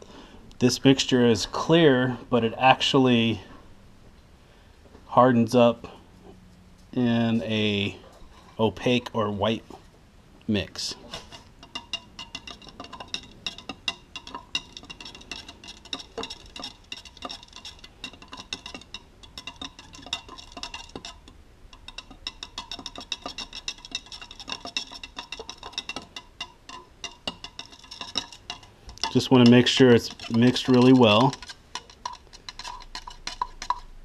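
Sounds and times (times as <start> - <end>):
stick scraping plastic cup: 11.0 - 33.9.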